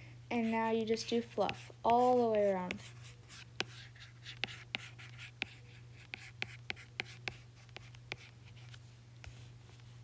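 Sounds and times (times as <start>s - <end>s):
steady low hum: 0.0s - 10.0s
stylus scratching on screen: 0.4s - 8.8s.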